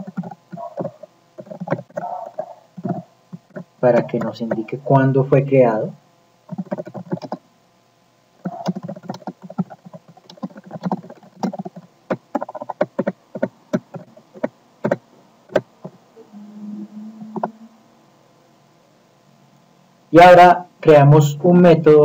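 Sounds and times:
keyboard typing: 0.0 - 4.8, 6.5 - 7.4, 8.4 - 16.0.

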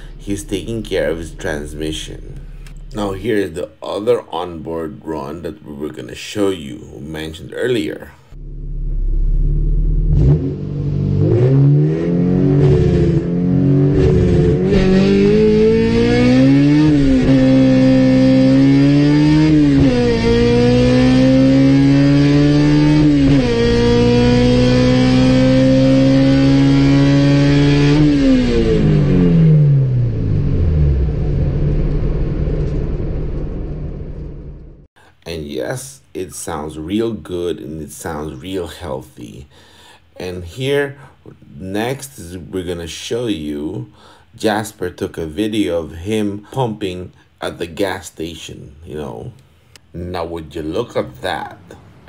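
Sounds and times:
car engine at full throttle: 0.0 - 3.3, 8.4 - 34.9.

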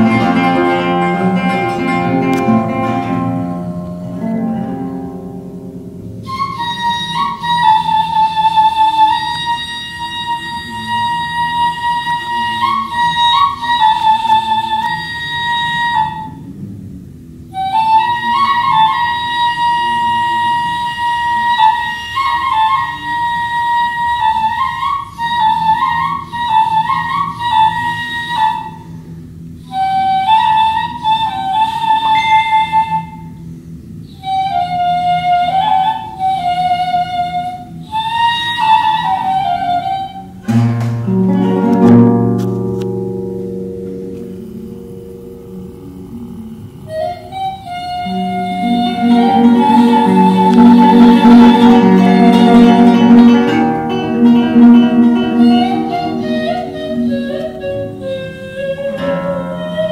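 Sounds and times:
guitar chord ringing: 0.0 - 6.4, 40.4 - 47.0, 48.2 - 59.9
reed flute melody: 0.0 - 16.7, 17.4 - 59.9.

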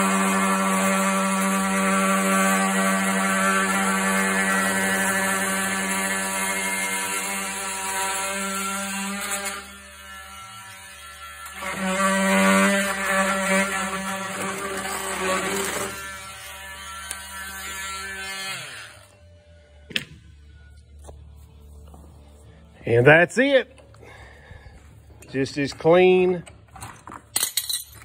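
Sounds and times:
oscillating tool buzzing whine: 0.0 - 19.8.

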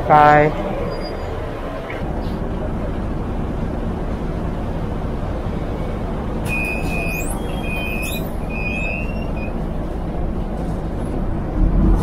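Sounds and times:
bus engine and road rumble: 0.0 - 12.0
short high-pitched squeals: 6.5 - 9.6.

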